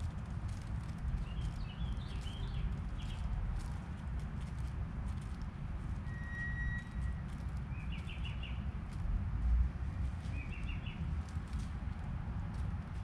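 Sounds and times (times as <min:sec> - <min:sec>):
doves pecking seed in clay pot: 0:00.0 - 0:13.0
small bird chirping: 0:01.1 - 0:03.3, 0:06.1 - 0:08.7, 0:10.0 - 0:11.1.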